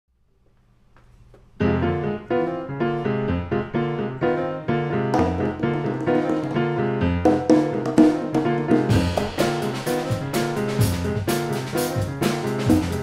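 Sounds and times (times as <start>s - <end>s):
jazz piano chords: 1.4s - 13.0s
drums with cymbal wash: 8.1s - 13.0s.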